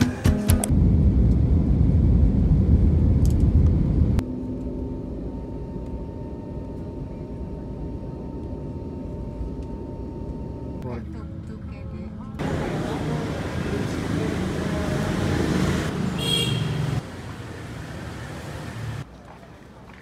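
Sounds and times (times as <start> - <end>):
steady cabin hum: 0.7 - 15.2
loud low cabin rumble: 0.7 - 15.9.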